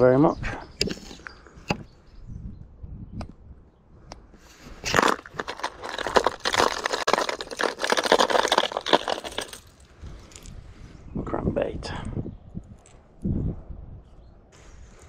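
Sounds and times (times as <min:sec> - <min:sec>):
plastic lures clattering in a box: 0:04.9 - 0:09.7.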